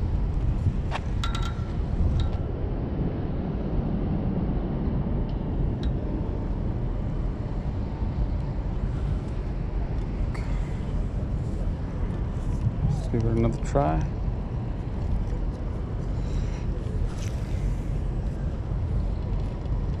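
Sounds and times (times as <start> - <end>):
low rumbling outdoor noise: 0.0 - 20.0.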